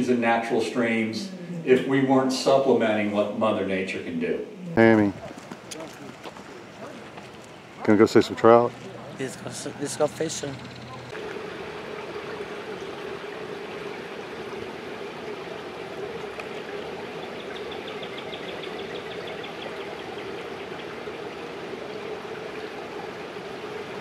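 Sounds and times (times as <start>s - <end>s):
water rushing: 0.0s - 24.0s.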